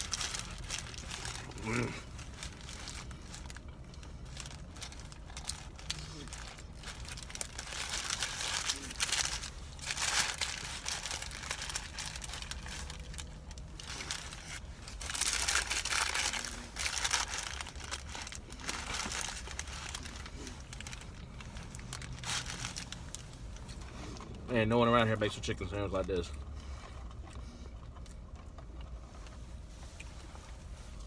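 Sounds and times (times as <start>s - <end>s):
paper wrapper crinkling: 0.0s - 23.9s
person chewing: 26.3s - 30.5s.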